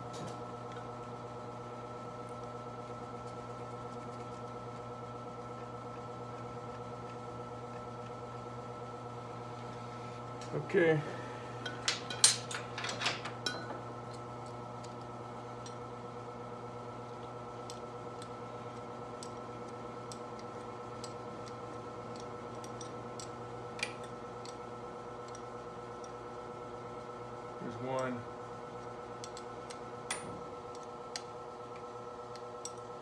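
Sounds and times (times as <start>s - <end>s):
steady shop hum: 0.0s - 33.0s.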